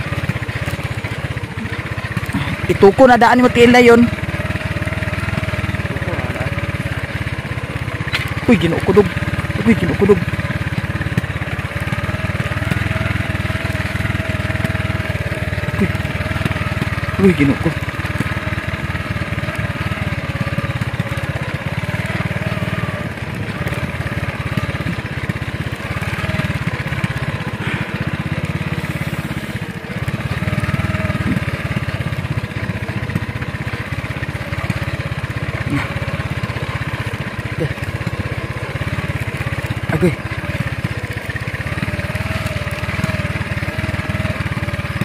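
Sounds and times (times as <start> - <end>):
small motorcycle engine running: 0.0 - 45.0.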